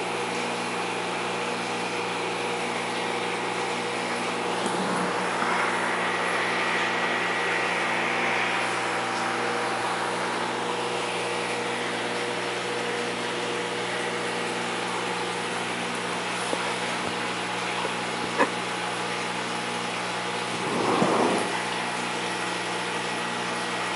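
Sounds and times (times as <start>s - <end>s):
pump hum: 0.0s - 23.9s
rushing water hiss: 3.6s - 12.4s, 14.1s - 22.6s.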